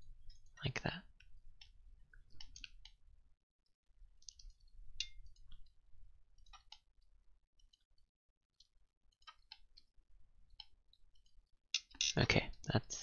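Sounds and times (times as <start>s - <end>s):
mouse and keyboard clicks: 10.6s - 12.2s.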